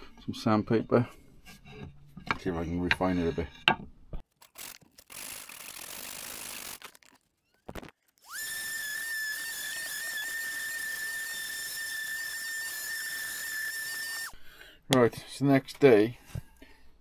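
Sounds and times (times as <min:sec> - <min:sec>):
high-pitched whistle: 0:08.2 - 0:14.3.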